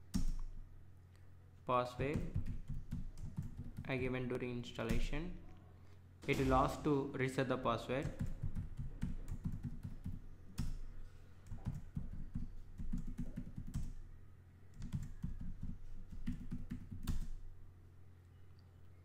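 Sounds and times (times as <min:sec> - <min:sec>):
typing on computer keyboard: 0:02.1 - 0:03.9, 0:08.0 - 0:10.8, 0:11.4 - 0:14.0, 0:14.7 - 0:17.4.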